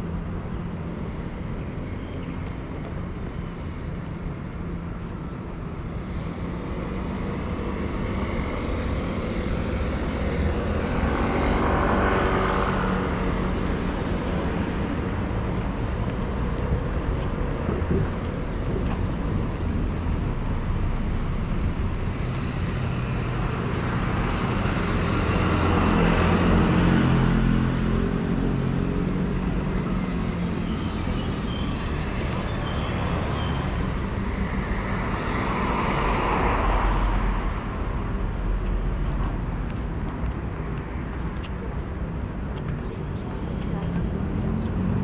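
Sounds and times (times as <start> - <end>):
steady low traffic rumble: 0.0 - 45.0
vehicles passing: 0.0 - 45.0.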